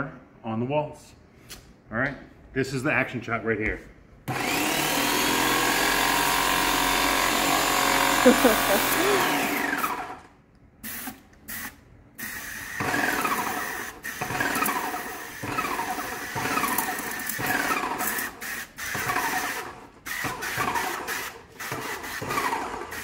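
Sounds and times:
paint sprayer pump strokes: 7.7s - 10.1s, 10.8s - 23.0s.

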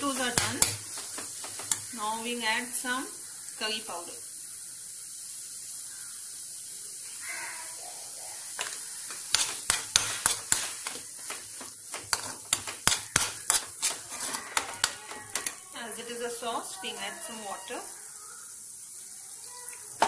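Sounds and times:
spoon clinking and scraping pan: 0.0s - 2.0s, 8.6s - 15.8s
sauce sizzling in a pan: 0.0s - 20.0s.

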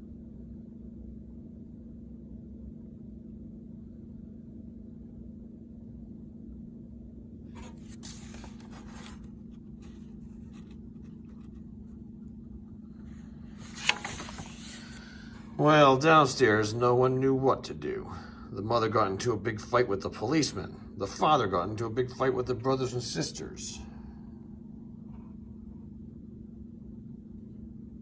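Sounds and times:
steady low hum: 0.0s - 28.0s
paper page rustling: 7.5s - 12.0s, 13.1s - 15.3s
page flicking over: 7.6s - 11.6s, 13.6s - 15.1s.

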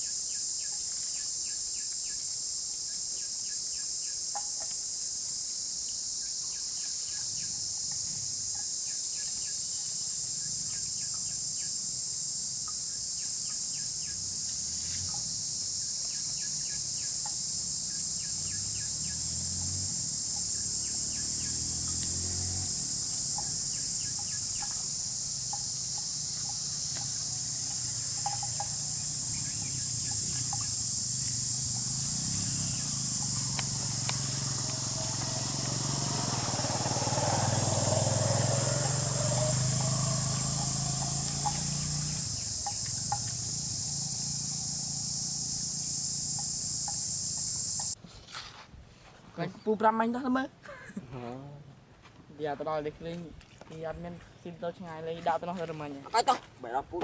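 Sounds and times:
insect chorus drone: 0.0s - 48.0s, 53.8s - 57.0s
bird chirps: 15.1s - 19.3s, 23.1s - 35.2s.

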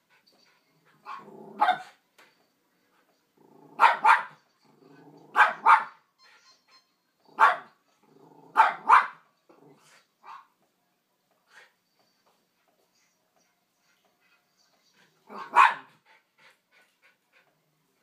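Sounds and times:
dog barking: 1.0s - 2.0s, 3.8s - 4.4s, 5.3s - 6.0s, 7.4s - 7.8s, 8.5s - 9.2s, 15.3s - 15.9s
dog growling: 1.2s - 1.6s, 8.1s - 8.6s.

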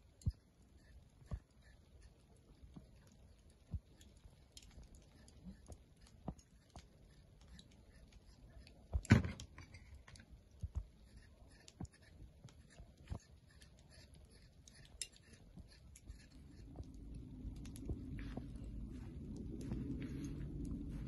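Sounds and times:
knife scraping potato skin: 10.8s - 16.7s.

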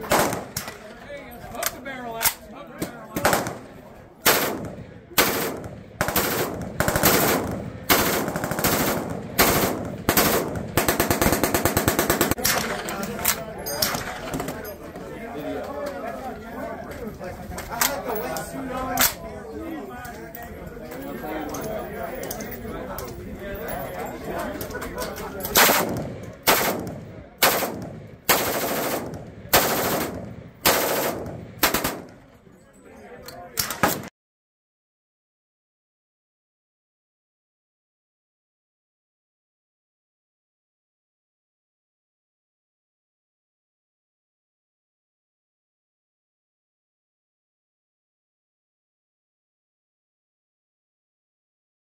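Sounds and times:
rifle shots: 0.0s - 0.8s, 3.2s - 12.8s, 25.6s - 32.2s
rapid rifle fire: 0.1s - 0.6s, 3.2s - 3.6s, 4.2s - 12.7s, 25.6s - 32.2s.

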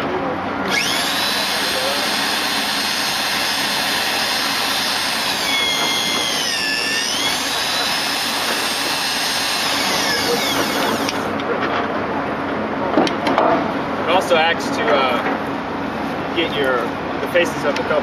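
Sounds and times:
electric facing tool whining: 0.6s - 11.4s.

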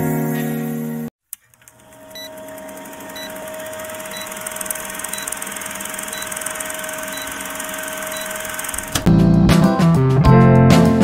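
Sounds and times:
film projector whirring and clatter: 1.4s - 9.1s.

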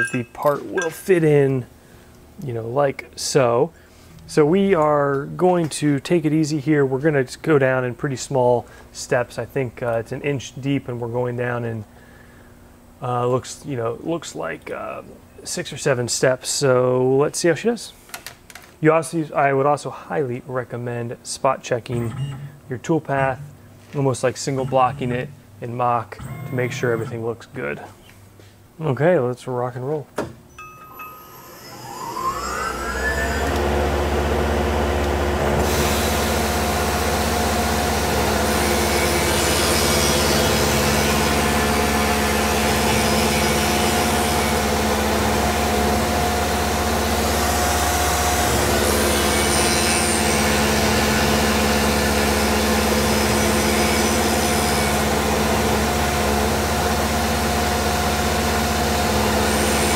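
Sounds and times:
end mill cutting: 30.6s - 57.9s, 58.6s - 59.9s
milling machine spindle whine: 30.6s - 59.9s.

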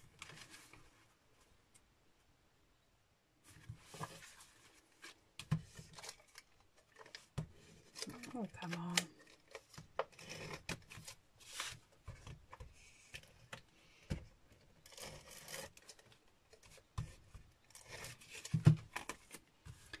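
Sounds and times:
paper rustling and rubbing: 3.4s - 13.4s.

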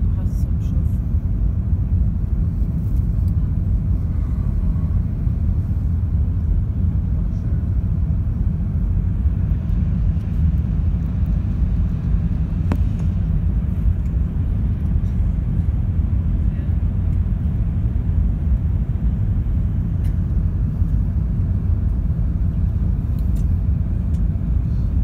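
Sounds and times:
airflow noise: 0.0s - 25.0s
jet engines at takeoff thrust: 0.0s - 25.0s.

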